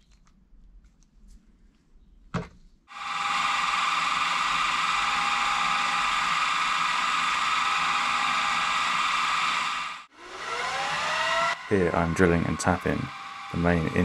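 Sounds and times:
milling machine whining: 2.9 - 14.0.

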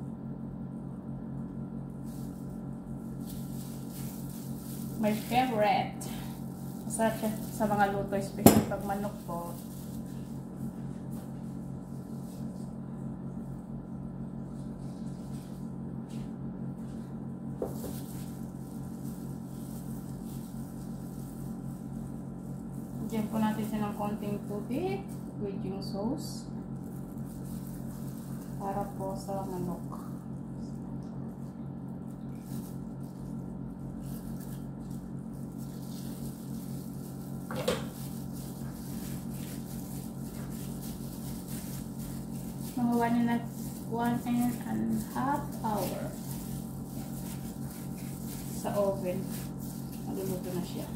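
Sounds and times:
low hum: 1.4 - 37.2.

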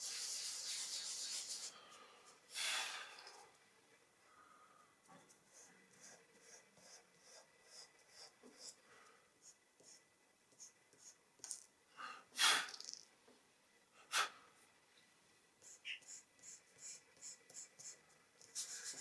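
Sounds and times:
pastel scratching on paper: 0.0 - 1.8, 5.3 - 8.8, 15.6 - 19.0.

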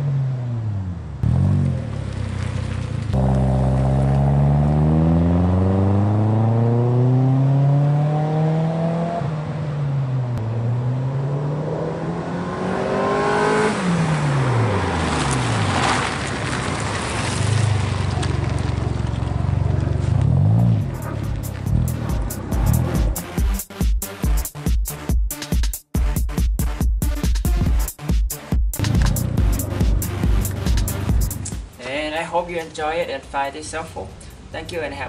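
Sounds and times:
car exhaust accelerating: 0.0 - 23.7, 28.8 - 31.8.

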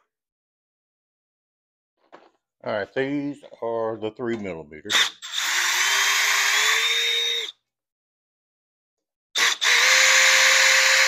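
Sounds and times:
cordless drill motor whining: 4.9 - 7.5, 9.4 - 11.0.

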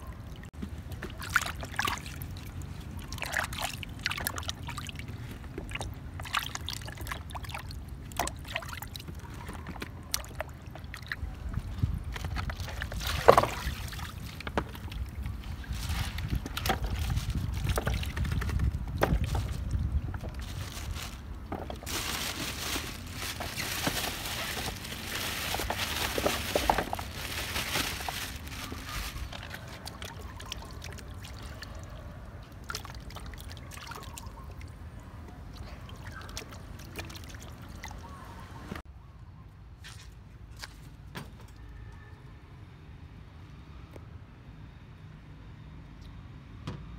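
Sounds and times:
water sloshing: 0.0 - 38.8
knocks and splashes: 0.6 - 31.9, 35.3 - 38.0.

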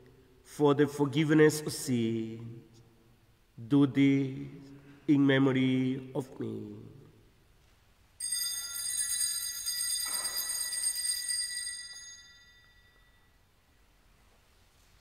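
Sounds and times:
altar bells ringing: 8.2 - 13.5.

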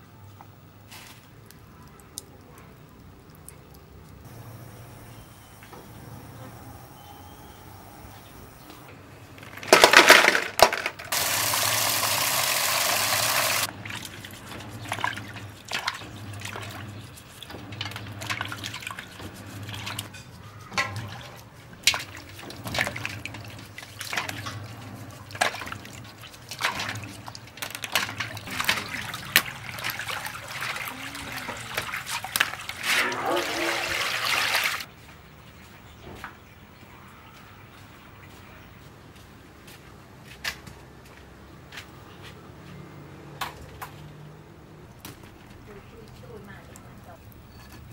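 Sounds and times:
small water splashes and clicks: 1.3 - 4.3, 13.8 - 20.1, 20.8 - 32.8, 44.9 - 47.4
water pouring into metal basin: 11.1 - 13.7, 28.4 - 34.9.

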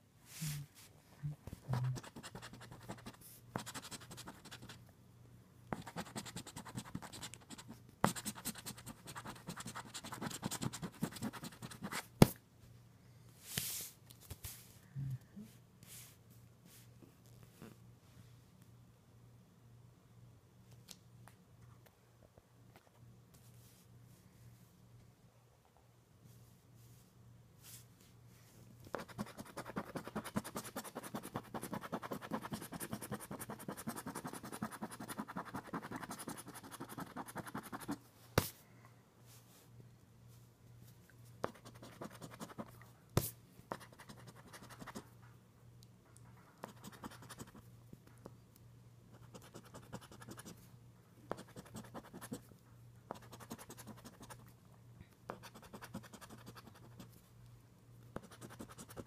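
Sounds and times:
scratching lottery ticket: 29.0 - 38.0.

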